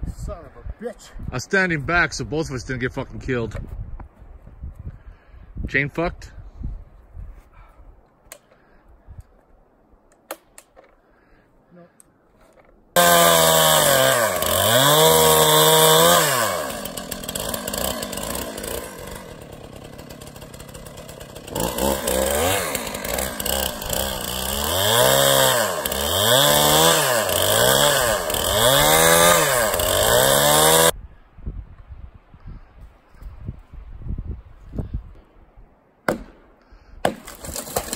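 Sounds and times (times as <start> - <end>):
chainsaw cutting wood: 13.0 - 30.9, 37.0 - 37.9.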